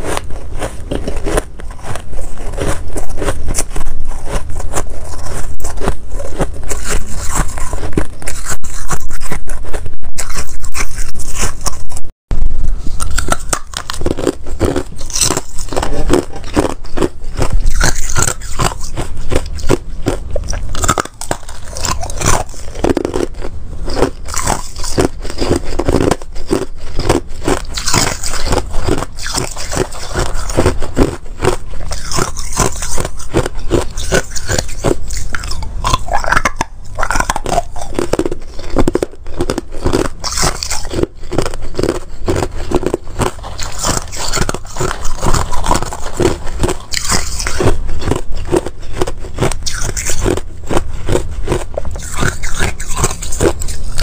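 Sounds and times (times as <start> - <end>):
ice being chewed: 0.0 - 54.0.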